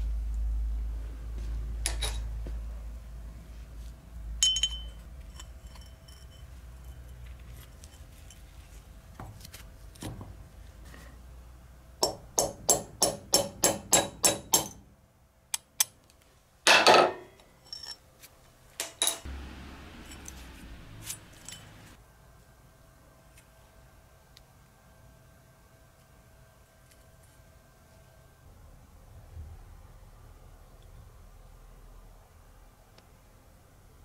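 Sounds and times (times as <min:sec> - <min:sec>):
hammer striking metal punch: 0:12.0 - 0:14.8.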